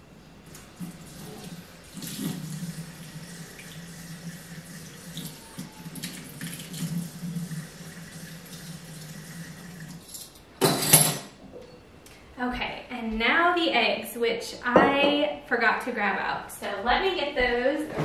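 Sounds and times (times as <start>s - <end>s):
faucet running water: 0.4s - 10.2s.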